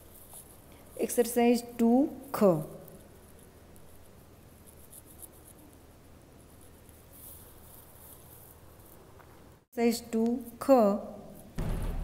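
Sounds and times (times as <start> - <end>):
pencil scratching on paper: 4.5 - 5.7.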